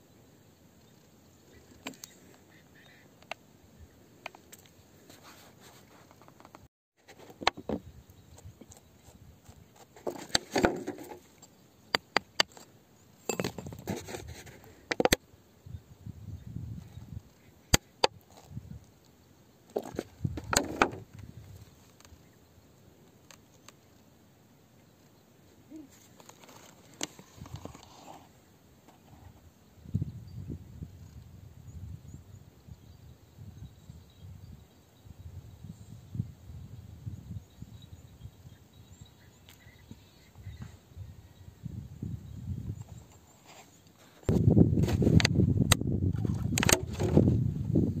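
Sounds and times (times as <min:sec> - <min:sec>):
crumbly rock scraping and crunching: 0:25.9 - 0:28.3.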